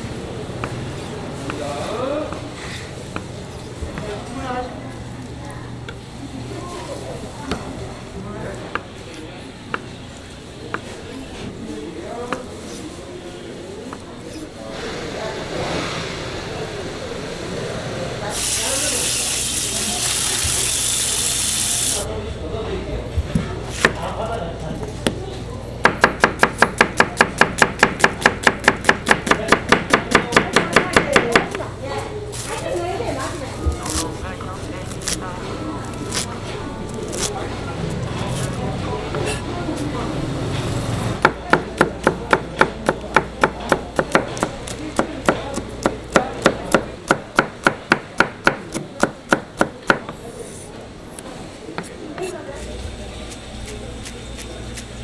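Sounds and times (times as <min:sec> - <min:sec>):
knife chopping on cutting board: 0:25.8 - 0:31.6
knife chopping onion on board: 0:25.8 - 0:31.6, 0:41.2 - 0:50.2.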